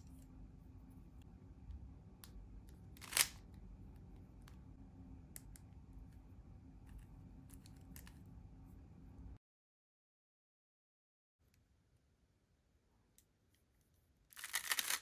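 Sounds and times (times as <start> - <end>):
speed cube clicking: 3.0 - 3.4, 14.4 - 15.0.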